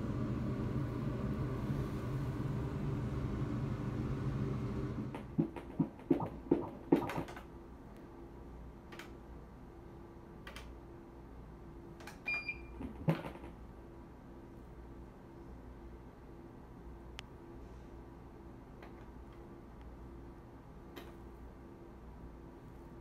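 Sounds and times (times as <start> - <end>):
ultrasound machine humming: 0.0 - 7.4
steady low hum: 0.0 - 12.0.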